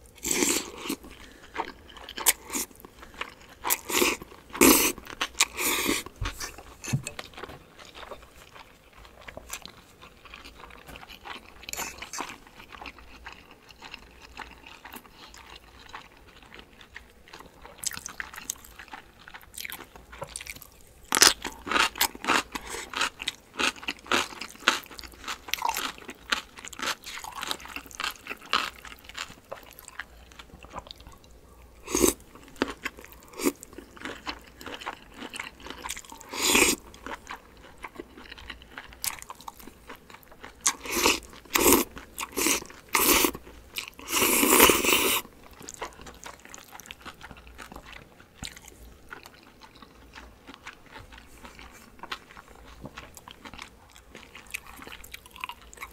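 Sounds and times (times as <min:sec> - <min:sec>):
wet chewing and crunching: 0:00.1 - 0:55.9
noodles being slurped: 0:40.6 - 0:45.3.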